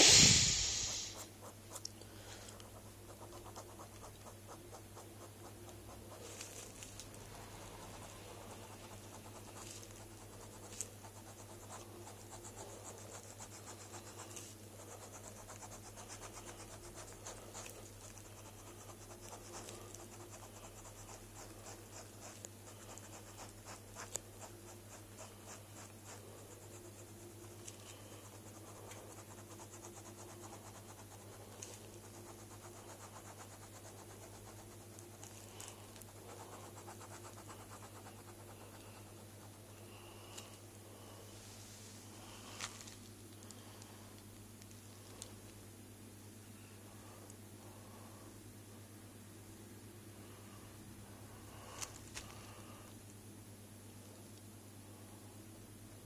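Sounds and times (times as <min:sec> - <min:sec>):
steady low hum: 0:00.0 - 0:56.0
pen scratching on paper: 0:02.6 - 0:39.7.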